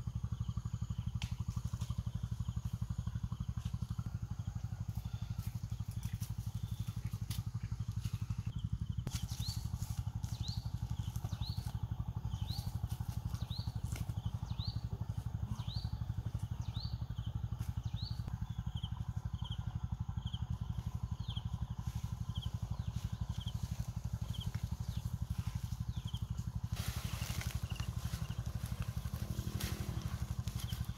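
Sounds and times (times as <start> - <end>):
motor thudding steadily: 0.0 - 30.9
bird chirping: 8.0 - 30.9.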